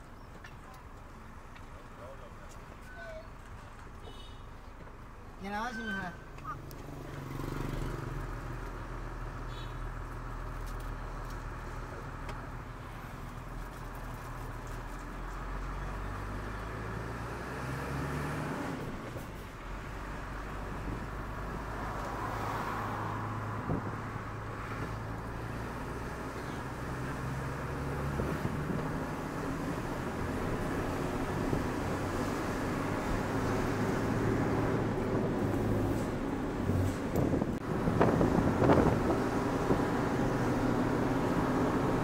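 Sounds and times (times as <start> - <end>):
road noise: 0.0 - 42.0.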